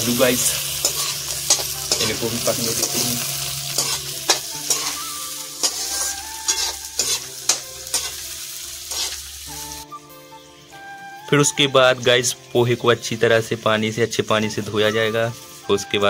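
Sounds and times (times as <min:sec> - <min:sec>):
vegetables sizzling in hot oil: 0:00.0 - 0:16.0
metal ladle scraping a pan: 0:00.4 - 0:09.4.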